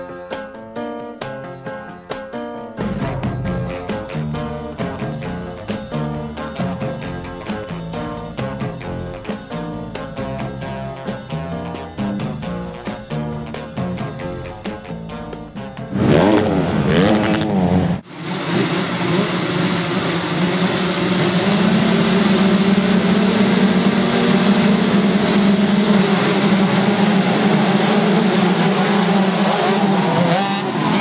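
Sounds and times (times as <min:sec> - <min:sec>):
music: 0:00.0 - 0:18.1, 0:21.1 - 0:31.0
motocross bike engines revving: 0:15.9 - 0:31.0.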